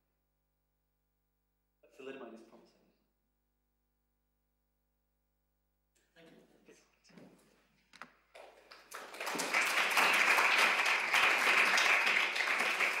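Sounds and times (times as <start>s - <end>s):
audience applauding: 8.4s - 13.0s.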